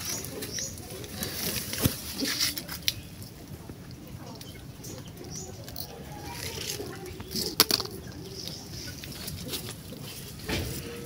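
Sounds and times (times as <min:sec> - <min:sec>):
hands rustling through wet leaves: 0:00.0 - 0:03.4, 0:05.7 - 0:10.9.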